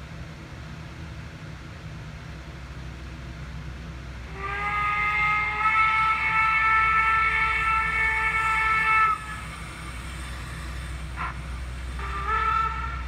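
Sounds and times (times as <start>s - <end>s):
low rumble of running train: 0.0s - 13.0s
model train steam whistle: 4.2s - 13.0s.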